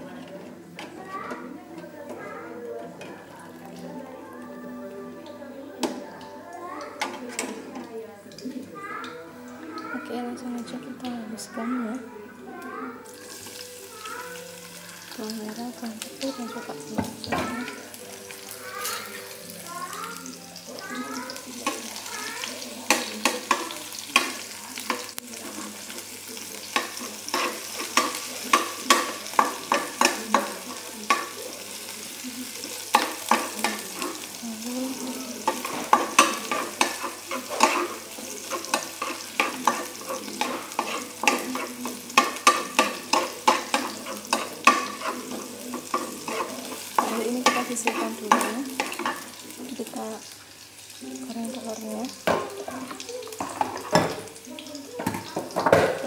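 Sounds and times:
vegetables sizzling in oil: 0:00.0 - 0:56.0
spatula scraping a pan: 0:21.3 - 0:50.0, 0:52.6 - 0:54.3.

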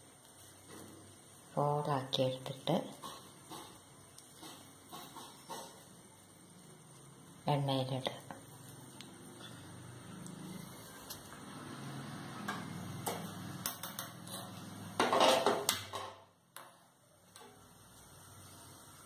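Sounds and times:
metal utensils clinking on pan: 0:12.5 - 0:16.1.

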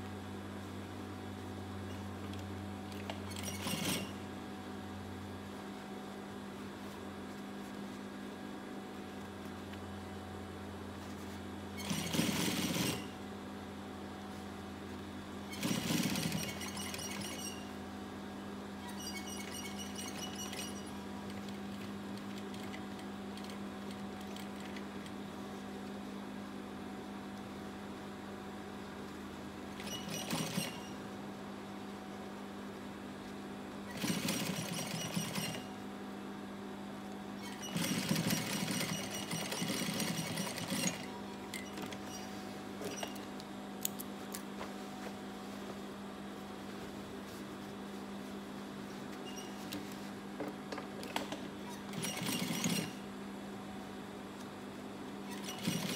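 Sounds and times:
steady machine hum: 0:00.0 - 0:55.9
sewing machine stitching: 0:03.0 - 0:04.2, 0:11.8 - 0:13.2, 0:15.5 - 0:17.7, 0:18.9 - 0:21.0, 0:29.8 - 0:31.0, 0:33.9 - 0:35.7, 0:37.4 - 0:43.2, 0:51.3 - 0:53.0, 0:55.3 - 0:55.9.

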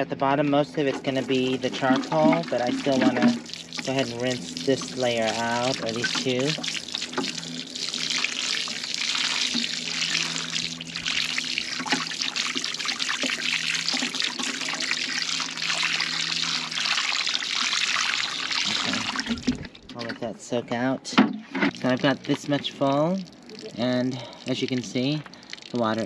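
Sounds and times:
water showering onto pebbles and sand: 0:01.1 - 0:19.3.

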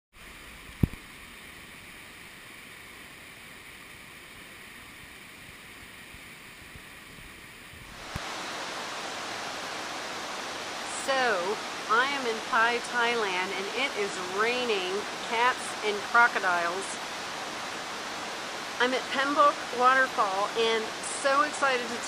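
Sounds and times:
waterfall rushing: 0:00.2 - 0:22.0
heavy rain: 0:05.6 - 0:22.0.

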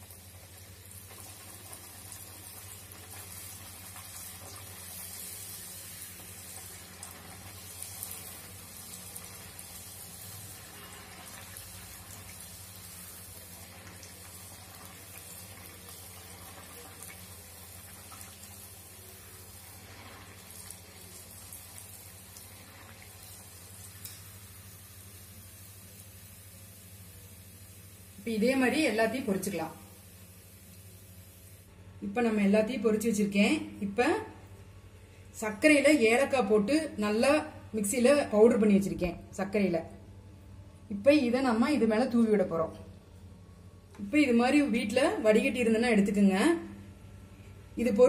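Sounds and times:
pastry sizzling in oil: 0:00.0 - 0:34.8
low steady hum: 0:00.0 - 0:48.0.

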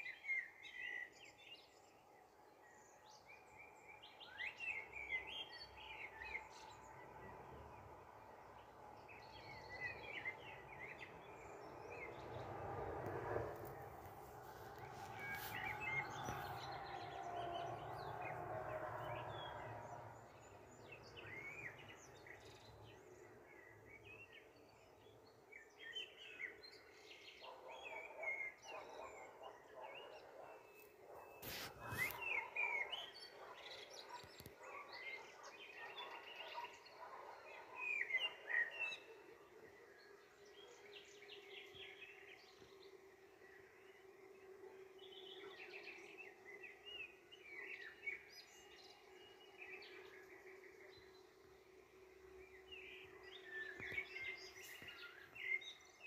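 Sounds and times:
small birds chirping: 0:30.8 - 0:33.0.

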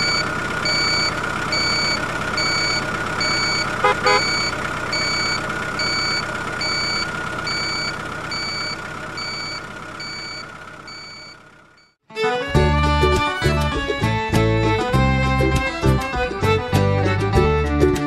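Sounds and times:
reversing alarm beeping: 0:00.0 - 0:12.0
vehicle engine running: 0:00.0 - 0:18.0
music: 0:12.1 - 0:18.0.

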